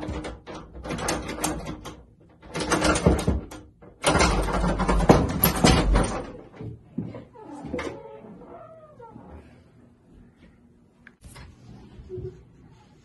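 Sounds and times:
door rattling at its knob: 0:00.0 - 0:06.6.

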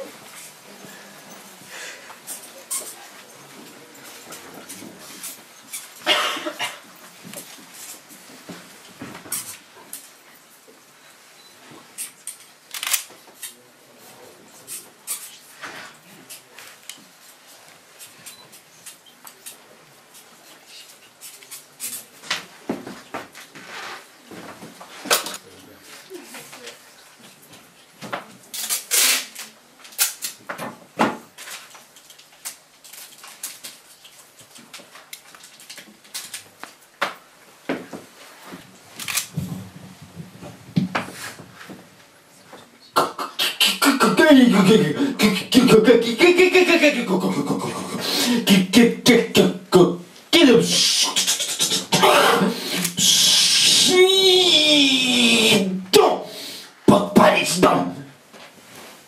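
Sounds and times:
hand scratching paper poster: 0:50.7 - 0:53.6.

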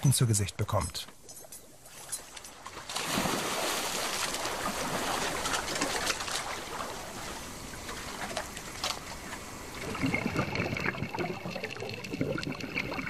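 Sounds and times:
rushing bubbling water: 0:02.8 - 0:13.0.

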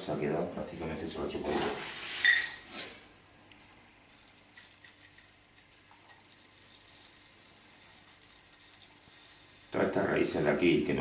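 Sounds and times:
granular soil clicking: 0:04.1 - 0:11.0.

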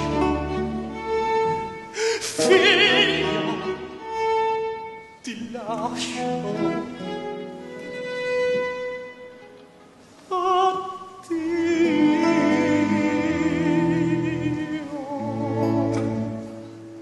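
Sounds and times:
string band playing: 0:00.0 - 0:17.0
opera singer with vibrato: 0:02.0 - 0:03.8, 0:10.3 - 0:15.9.

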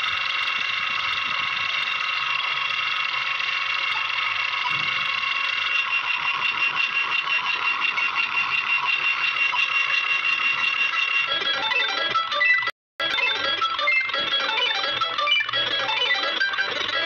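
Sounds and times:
lower busy synth notes: 0:05.5 - 0:17.0.

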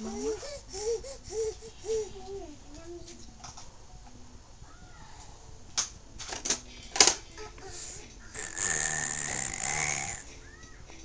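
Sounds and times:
baby's raspy growl-squeal: 0:08.4 - 0:10.2.

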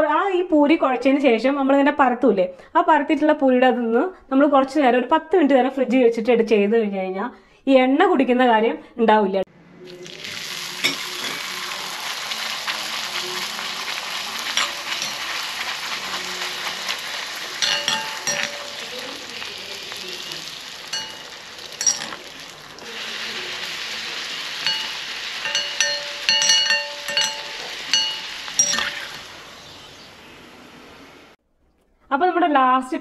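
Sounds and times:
dough sizzling in hot oil: 0:09.9 - 0:31.4
metal spoon clinking on pan: 0:10.8 - 0:11.5, 0:14.5 - 0:19.5, 0:20.8 - 0:22.5, 0:24.6 - 0:29.2.

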